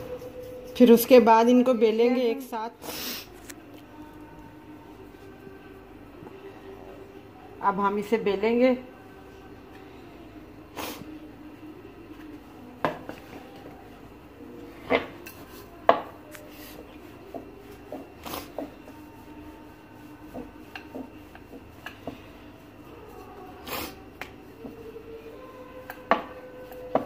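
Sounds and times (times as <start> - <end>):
rolling pin rubbing over dough: 0.0 - 2.5, 14.6 - 27.0.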